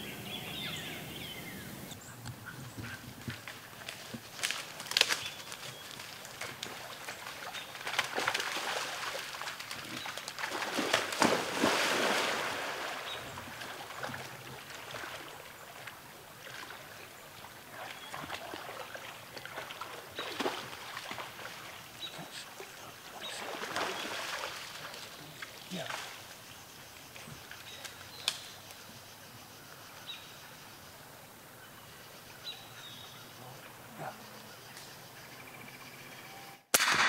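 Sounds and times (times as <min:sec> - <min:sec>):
water splashing and sloshing: 0:02.8 - 0:28.0.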